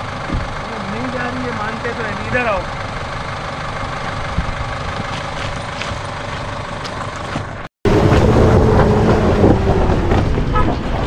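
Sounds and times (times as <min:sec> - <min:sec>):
diesel engine idling: 0:00.0 - 0:11.0
louder engine droning: 0:00.0 - 0:11.0.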